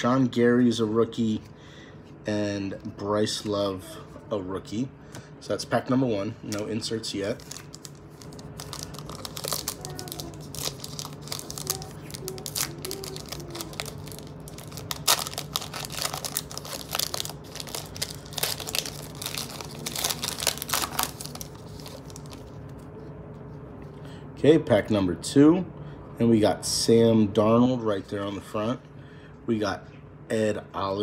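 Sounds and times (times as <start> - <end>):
foil wrapper crinkling: 7.3 - 22.8.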